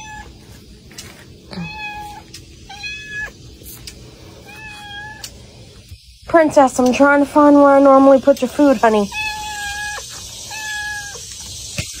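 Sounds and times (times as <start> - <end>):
cat meowing: 0.0 - 0.4, 1.5 - 3.4, 4.4 - 5.3, 9.1 - 11.3.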